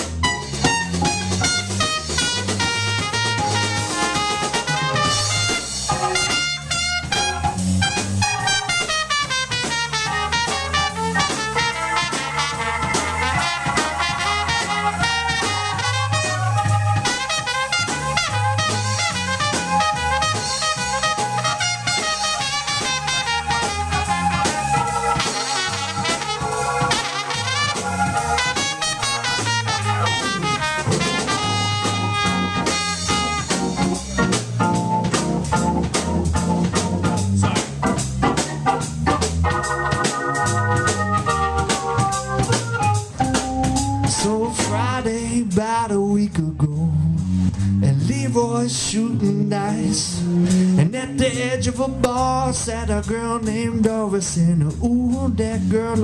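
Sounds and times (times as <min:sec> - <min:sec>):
trumpet: 0:00.0 - 0:34.4, 0:39.1 - 0:44.9
organ: 0:00.0 - 0:45.6
drum kit: 0:00.0 - 0:56.0.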